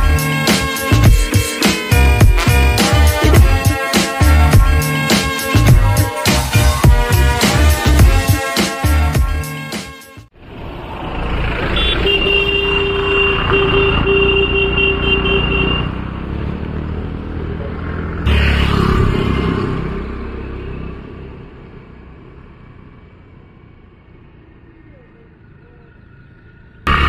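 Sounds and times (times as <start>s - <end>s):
motor scooter passing: 10.4s - 27.0s
vehicle engines running: 10.4s - 27.0s
vehicle horn sounding: 11.7s - 16.0s.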